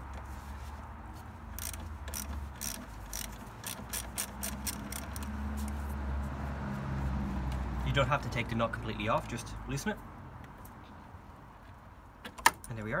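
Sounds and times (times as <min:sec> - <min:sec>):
ratchet clicking: 0:01.5 - 0:05.4.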